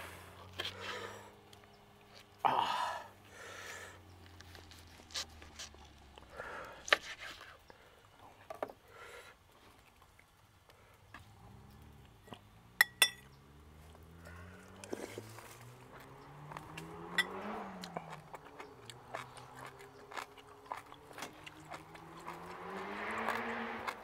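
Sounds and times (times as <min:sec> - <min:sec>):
soft eating sounds: 0:00.3 - 0:12.6, 0:13.2 - 0:24.0
vehicle engine passing: 0:11.2 - 0:24.0
metal spoon clinking bowl: 0:12.8 - 0:13.3.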